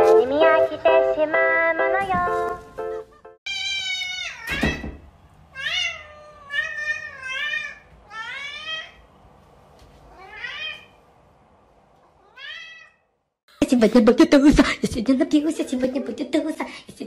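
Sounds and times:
cat meowing: 3.5 - 4.8, 5.6 - 9.0, 10.1 - 11.0, 12.2 - 13.1.

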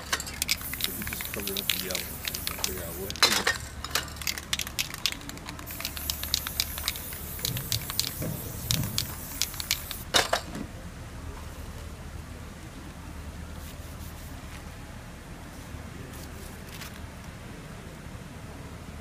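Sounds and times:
spray crackles and spits: 0.0 - 10.1
spray-paint can hissing: 0.3 - 3.4, 4.2 - 10.1.

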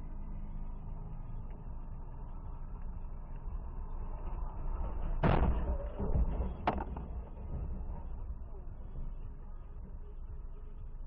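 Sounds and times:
cabin road noise rumble: 0.0 - 11.0
car crash impact bangs: 5.2 - 5.8.

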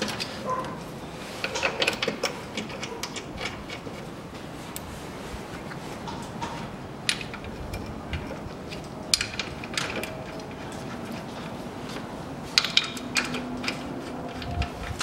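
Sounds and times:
metal clicks of bolts and tools: 1.4 - 4.0, 7.1 - 11.2, 12.6 - 15.0.

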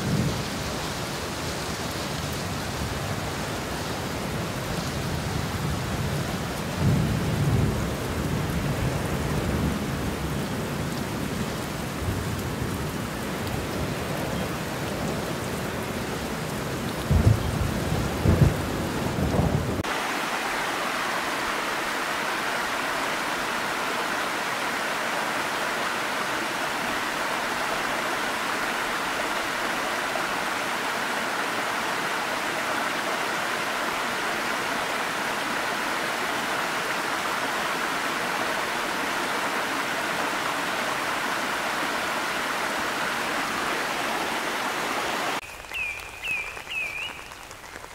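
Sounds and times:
steady rain falling: 0.0 - 47.9
thunder rumbling: 17.0 - 19.9
waterfall pouring onto rocks: 19.2 - 44.0, 45.4 - 47.9.

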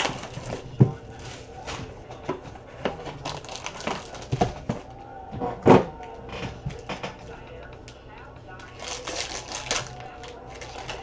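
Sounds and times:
foil pack rustling: 0.0 - 2.0, 3.0 - 4.8, 8.6 - 11.0.

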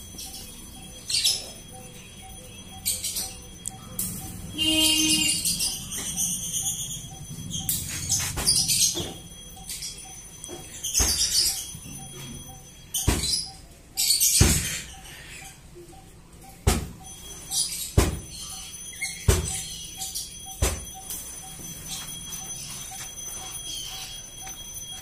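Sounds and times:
sharp metallic knocks: 13.0 - 13.6, 16.6 - 17.1, 17.9 - 19.7, 20.5 - 21.2.

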